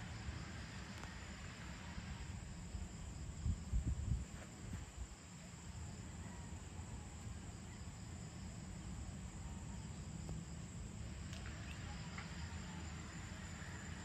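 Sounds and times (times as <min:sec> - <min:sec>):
insects trilling: 0:00.0 - 0:14.0.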